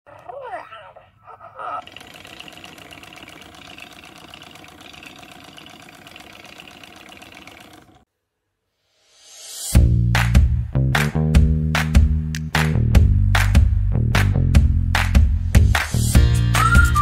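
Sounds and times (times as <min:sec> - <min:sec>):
toy motor pulsing buzz: 0:01.8 - 0:08.0.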